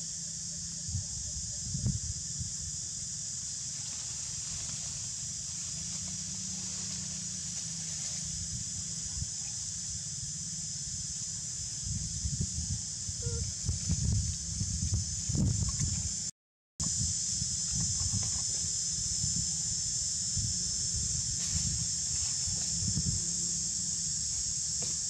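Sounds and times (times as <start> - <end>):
steady high-pitched hiss: 0.0 - 25.0
wind rumble on microphone: 0.8 - 3.0, 8.0 - 9.5, 11.0 - 23.9.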